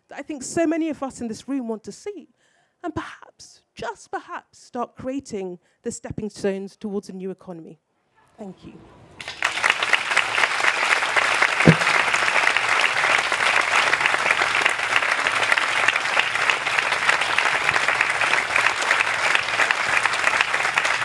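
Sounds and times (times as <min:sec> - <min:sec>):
audience applauding: 0:09.2 - 0:21.0
thump: 0:11.7 - 0:12.1.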